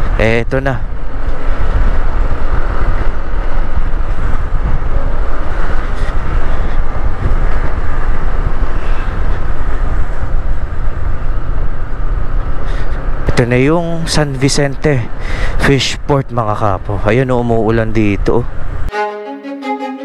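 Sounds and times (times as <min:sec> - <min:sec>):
wind rumbling on microphone: 0:00.0 - 0:13.4
road noise: 0:00.0 - 0:18.9.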